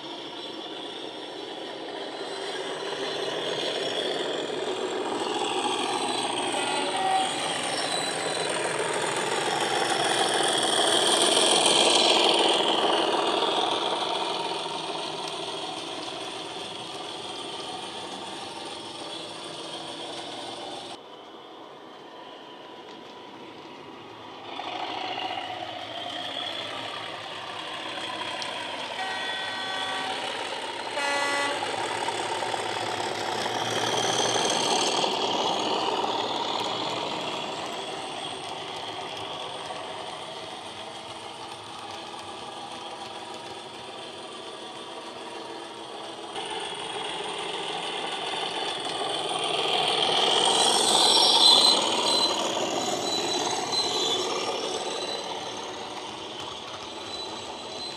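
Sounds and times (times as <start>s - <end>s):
model train diesel engine sound: 0.0s - 57.9s
two-note horn: 31.0s - 31.7s.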